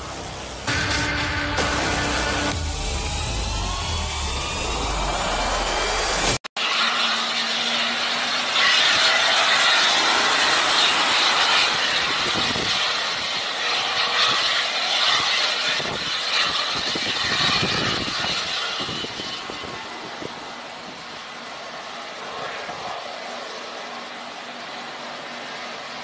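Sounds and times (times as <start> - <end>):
jet engines roaring: 0.0 - 26.0
wind buffeting microphone: 8.8 - 23.6.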